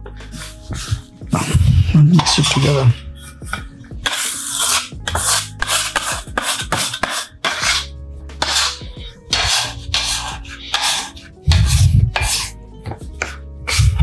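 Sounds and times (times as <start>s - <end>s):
background music: 0.0s - 14.0s
metal scraper rasping on dough: 0.2s - 14.0s.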